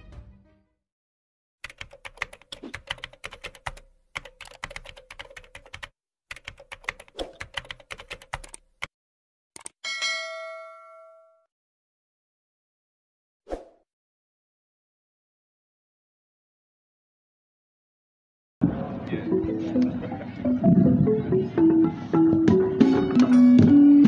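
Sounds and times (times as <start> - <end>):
bright bell ding: 9.8 - 11.5.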